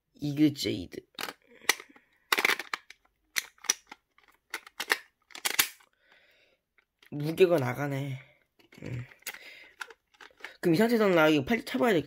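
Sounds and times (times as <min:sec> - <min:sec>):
hard plastic clicks and snaps: 0:01.2 - 0:05.9, 0:08.6 - 0:10.6.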